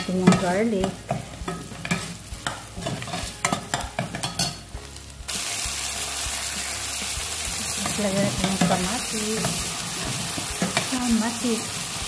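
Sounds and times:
frying hiss: 0:00.0 - 0:12.0
metal ladle scraping pot: 0:00.1 - 0:04.6.

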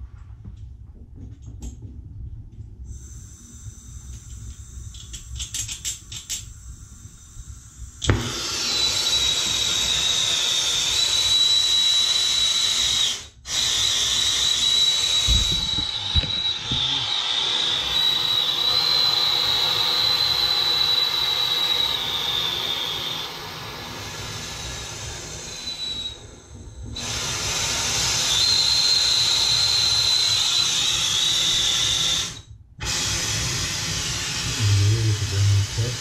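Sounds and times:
gas hissing: 0:02.9 - 0:36.0
torch flame hissing and whistling: 0:02.9 - 0:36.0
flame lighting with a pop: 0:08.0 - 0:08.4.

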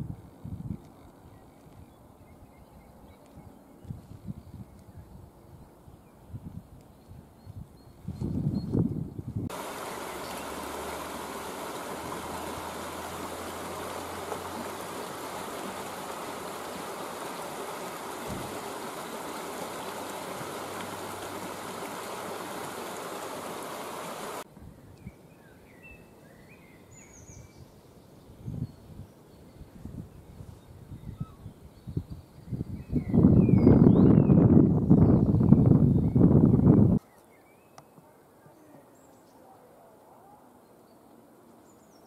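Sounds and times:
water rushing over rocks: 0:09.5 - 0:24.4.

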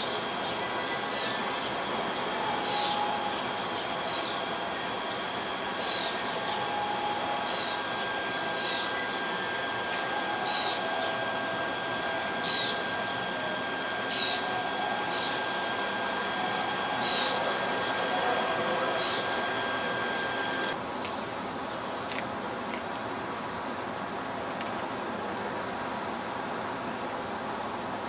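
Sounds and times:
faint high steady tone: 0:00.0 - 0:20.8
city background hum: 0:00.0 - 0:28.0.

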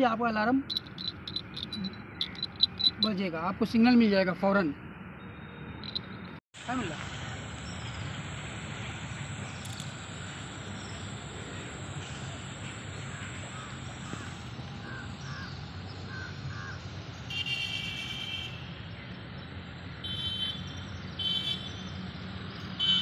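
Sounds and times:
small birds chirping: 0:00.6 - 0:03.3
crows cawing: 0:02.1 - 0:02.6, 0:13.0 - 0:16.8.

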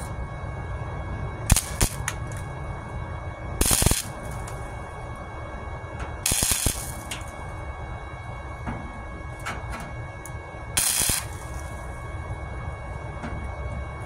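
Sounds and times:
welding arc bursts: 0:01.5 - 0:02.1, 0:03.6 - 0:04.5, 0:06.2 - 0:07.3, 0:10.8 - 0:11.8.

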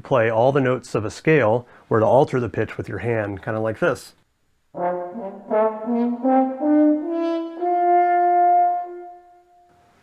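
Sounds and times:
french horn playing rising scale: 0:04.8 - 0:09.7.

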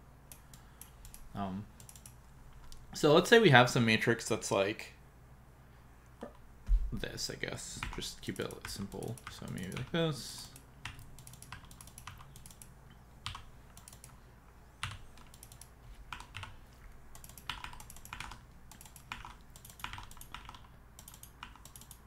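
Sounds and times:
computer keyboard typing: 0:01.8 - 0:02.8, 0:07.8 - 0:14.2, 0:14.8 - 0:22.0.

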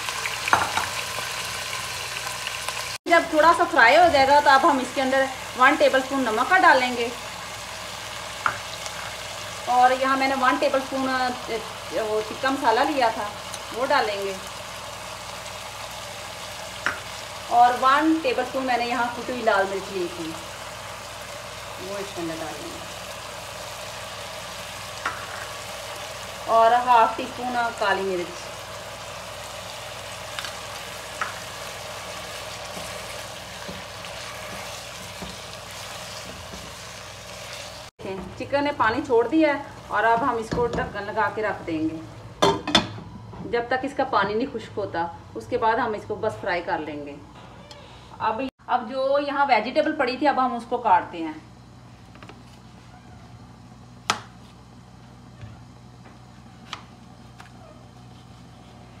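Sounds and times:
chicken sizzling in hot oil: 0:00.0 - 0:40.6.

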